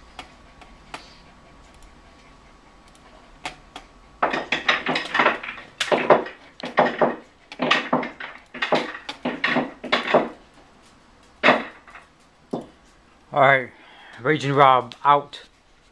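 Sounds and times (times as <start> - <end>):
clatter of hard knocks and rattles: 4.2 - 10.6, 11.4 - 12.8.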